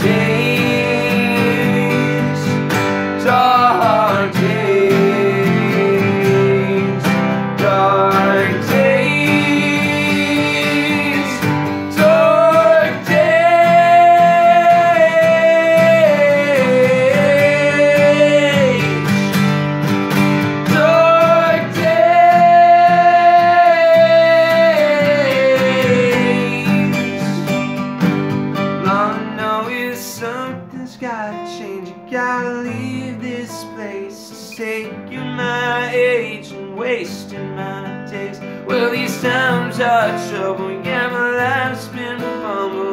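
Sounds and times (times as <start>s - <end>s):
acoustic guitars strummed: 0.0s - 42.9s
person singing long notes: 3.2s - 19.3s, 20.7s - 27.5s.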